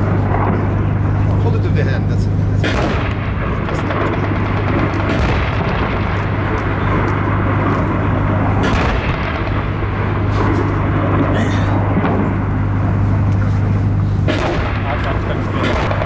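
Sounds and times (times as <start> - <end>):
low hum: 0.0 - 16.0
noisy rumble: 0.0 - 16.0
distant gunfire: 2.6 - 11.3, 14.2 - 16.0.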